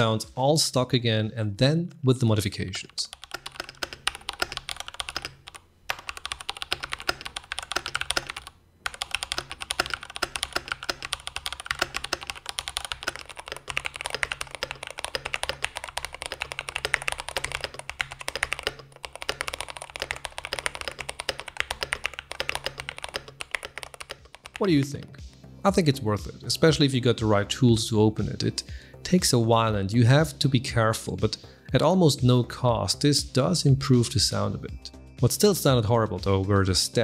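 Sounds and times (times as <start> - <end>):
mechanical keyboard typing: 3.1 - 25.1.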